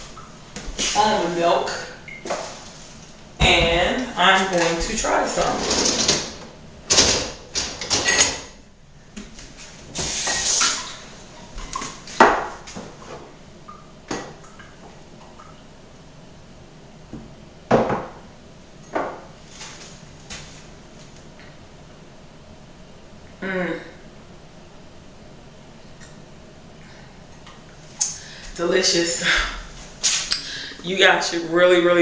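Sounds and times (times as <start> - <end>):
kitchenware knocking and clinking: 7.7 - 8.5, 17.7 - 18.2.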